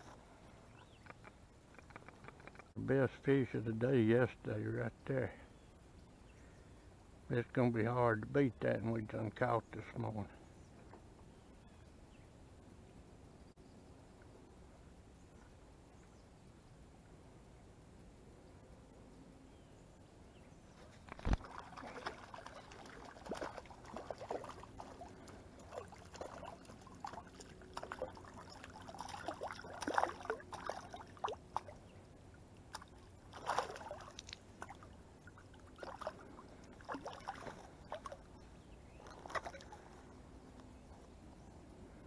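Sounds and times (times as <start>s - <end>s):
water sloshing around legs: 20.8s - 40.0s
fish splashing: 21.2s - 31.8s, 32.6s - 38.3s, 39.1s - 39.9s.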